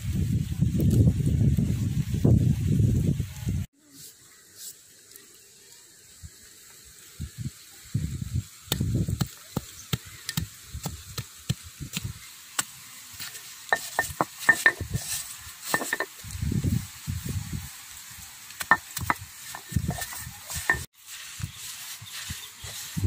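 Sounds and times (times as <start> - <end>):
stone roller rumbling: 13.7 - 16.1, 18.7 - 20.9.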